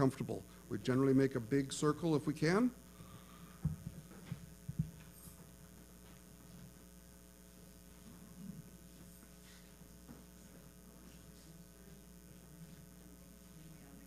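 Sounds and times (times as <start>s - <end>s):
steady low hum: 0.0s - 14.0s
people moving about: 3.0s - 6.8s, 7.9s - 14.0s.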